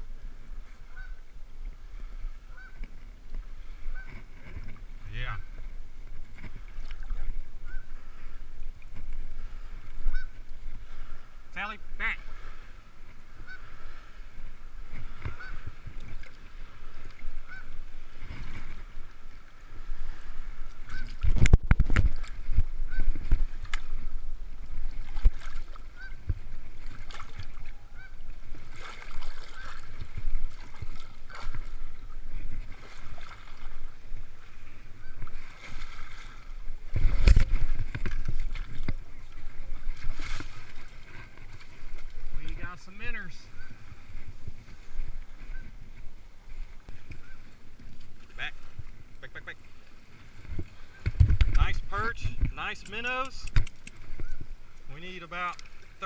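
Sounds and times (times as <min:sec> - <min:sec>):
water sloshing around legs: 0:12.3 - 0:51.5
heavy splashes and bumps: 0:35.6 - 0:39.0.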